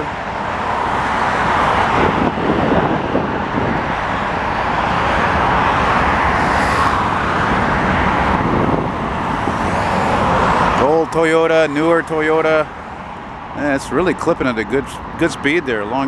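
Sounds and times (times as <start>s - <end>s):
highway traffic rushing: 0.0s - 16.0s.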